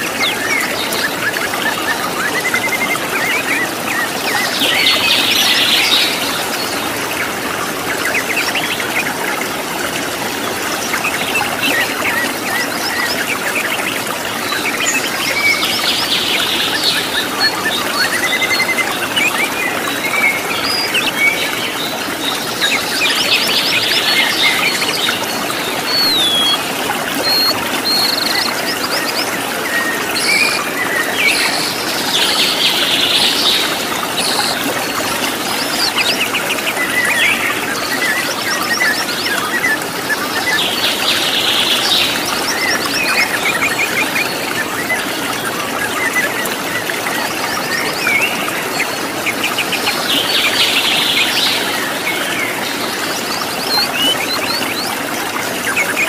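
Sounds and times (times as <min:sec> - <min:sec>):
waterfall rushing: 0:00.0 - 0:56.0
birds chirping rapidly: 0:11.1 - 0:45.2.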